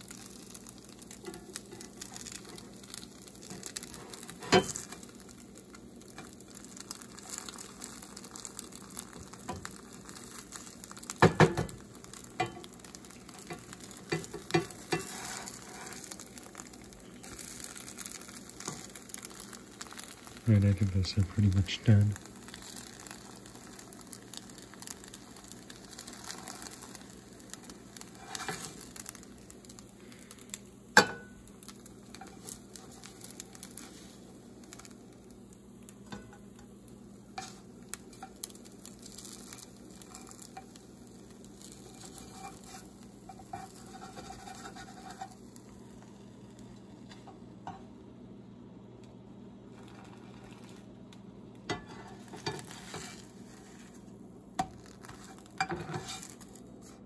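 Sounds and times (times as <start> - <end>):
pancakes sizzling in frying pan: 0.0 - 48.0, 49.6 - 57.0
spatula scraping and knocking pan: 13.4 - 16.2, 41.9 - 45.4, 51.7 - 53.2, 54.6 - 56.3.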